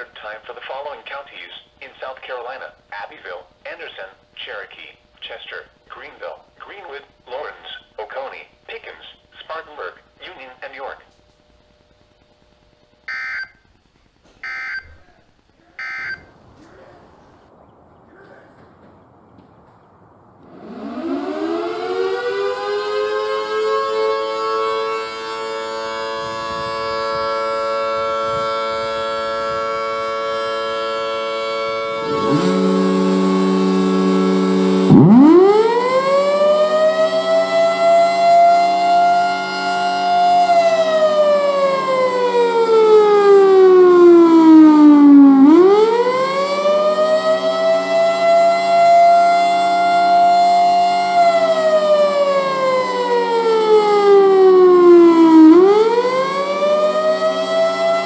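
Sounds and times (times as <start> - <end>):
low hum: 11.0 - 23.1, 31.6 - 37.2
mechanical siren wailing: 13.0 - 13.7, 14.4 - 17.6, 20.4 - 58.0.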